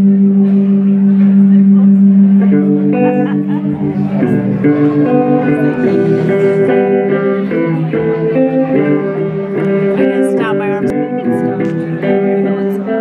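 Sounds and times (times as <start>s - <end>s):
guitar chords strummed and picked: 0.0s - 13.0s.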